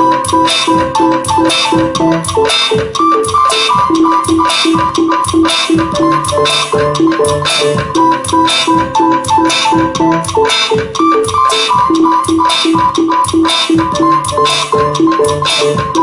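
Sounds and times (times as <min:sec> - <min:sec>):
drum machine beat: 0:00.0 - 0:16.0
looped synth melody: 0:00.0 - 0:16.0.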